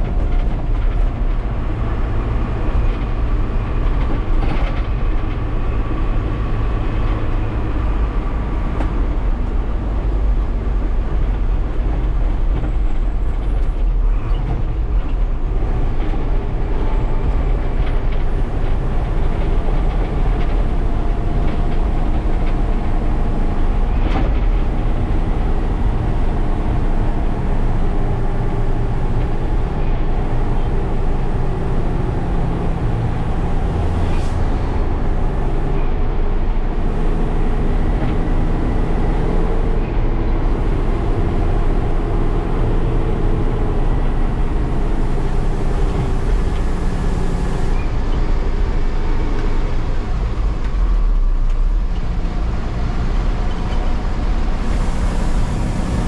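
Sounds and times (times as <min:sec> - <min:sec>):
bus engine and road rumble: 0:00.0 - 0:56.0.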